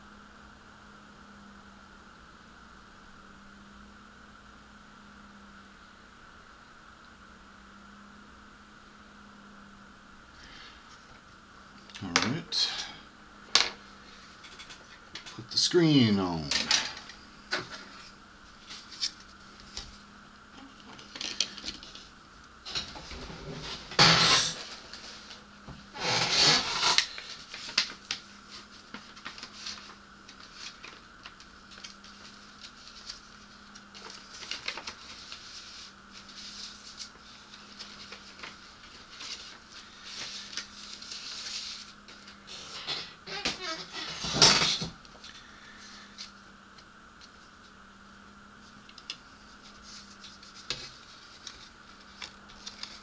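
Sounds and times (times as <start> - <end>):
rustling scrapes: 21.0 - 44.7, 48.6 - 53.0.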